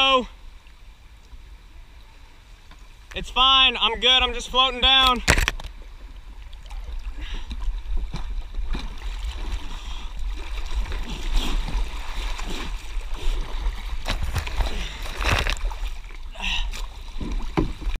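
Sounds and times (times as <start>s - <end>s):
water rushing and gurgling: 0.0s - 18.0s
paddle strokes splashing: 4.9s - 18.0s.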